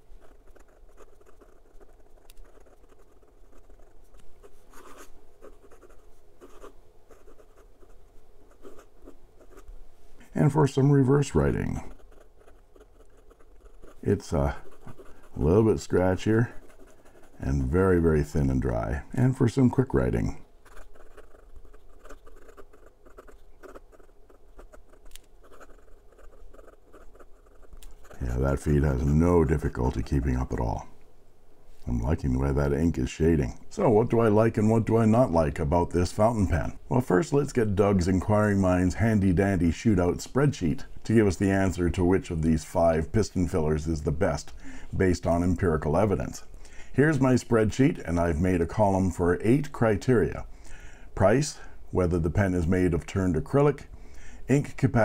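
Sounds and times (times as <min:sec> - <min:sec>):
fountain pen scratching on paper: 0:00.0 - 0:09.7, 0:11.6 - 0:17.8, 0:20.6 - 0:28.9.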